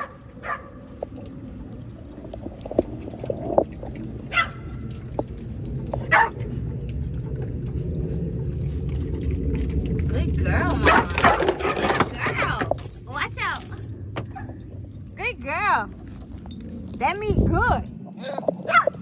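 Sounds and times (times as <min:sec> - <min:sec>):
dog chewing and crunching: 0:02.2 - 0:12.7, 0:15.9 - 0:17.0.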